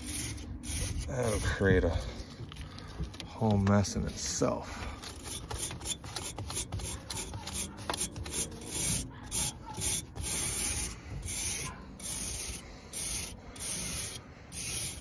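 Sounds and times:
hand brush scraping metal fins: 0.0s - 2.6s, 3.4s - 15.0s.

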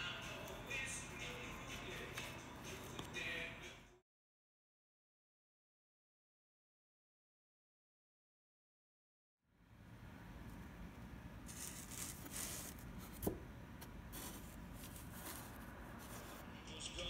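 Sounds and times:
felt scraping and rustling: 11.5s - 13.3s, 14.1s - 16.6s.

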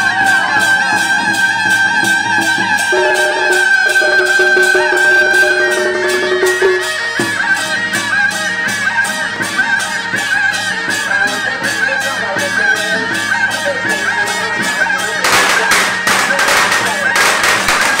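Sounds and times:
steady percussion beat: 0.0s - 18.0s
shrill reed horn melody: 2.8s - 7.7s, 14.2s - 18.0s.

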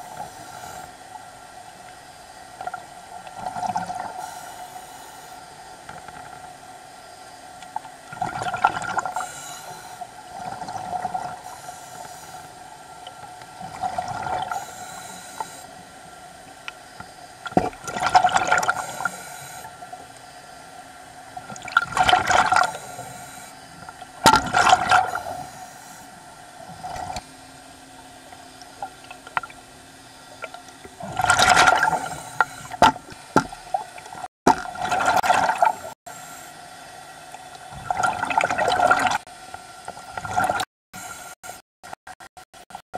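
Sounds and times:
steady hum: 0.0s - 3.4s, 4.0s - 34.3s
exhaled air bubbles underwater: 8.1s - 9.4s, 10.3s - 11.6s, 13.6s - 14.7s, 17.4s - 19.6s, 21.4s - 23.3s, 24.2s - 25.6s, 30.3s - 36.0s, 37.3s - 39.2s, 40.0s - 40.7s.

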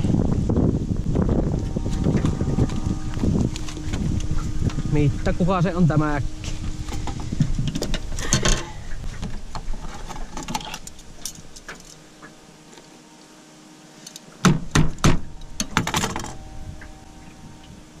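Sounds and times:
sharp knocks: 14.4s - 16.4s.

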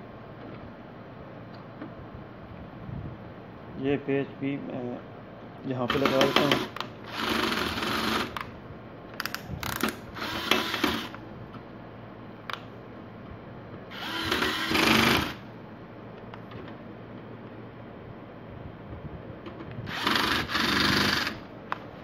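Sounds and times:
electric screwdriver whirring: 5.9s - 8.5s, 9.2s - 11.2s, 13.9s - 15.4s, 19.9s - 21.4s.

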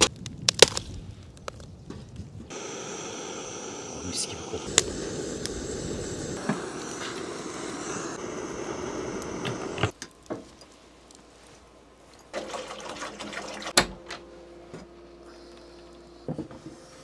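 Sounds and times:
steady rushing noise: 2.5s - 9.9s
water pouring into metal pot: 12.4s - 13.7s.

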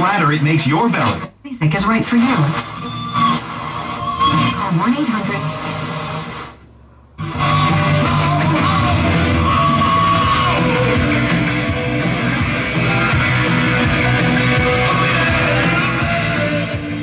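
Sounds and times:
rock song with shouted vocal: 7.2s - 17.0s.

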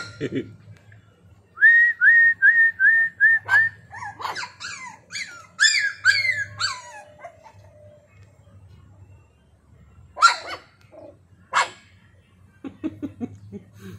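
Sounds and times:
puppy yelping: 3.4s - 7.8s, 10.2s - 11.8s
puppy whimpering: 3.9s - 8.0s.

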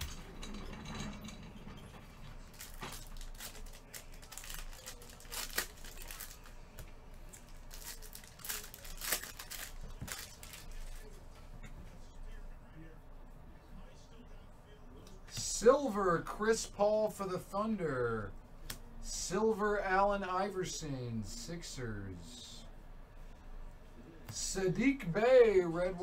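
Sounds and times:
card pack wrappers crinkling and tearing: 2.5s - 11.1s
cards being handled: 2.5s - 11.1s.

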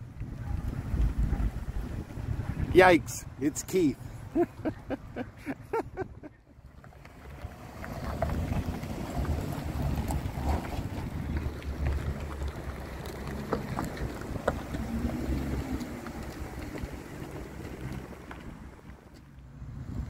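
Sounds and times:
wind buffeting microphone: 0.0s - 3.4s, 7.4s - 18.7s
car engines rumbling past: 0.0s - 20.0s.

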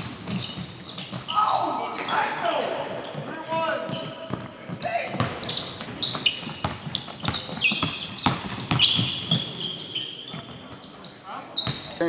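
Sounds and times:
sneakers squeaking: 0.0s - 12.0s
basketball dribbling on hardwood: 4.3s - 9.4s.

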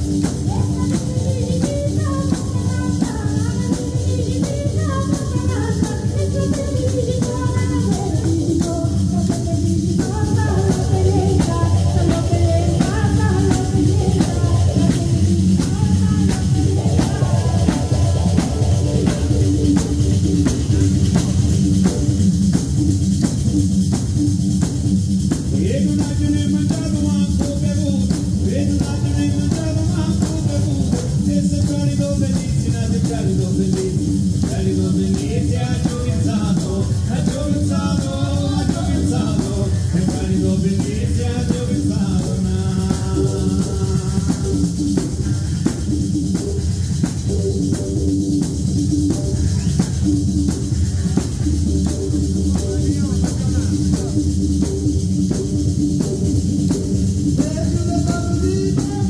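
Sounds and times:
frame drums beating rhythm: 0.0s - 59.0s
woman singing: 0.2s - 19.2s, 25.6s - 44.7s.

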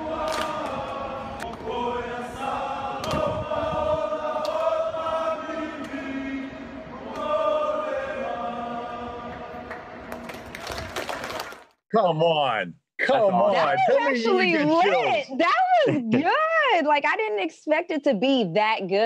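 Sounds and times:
men singing in harmony: 0.0s - 10.0s.

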